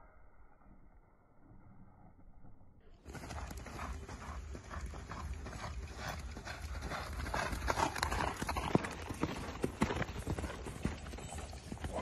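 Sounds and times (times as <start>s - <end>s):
horse hooves on sand: 3.0s - 12.0s.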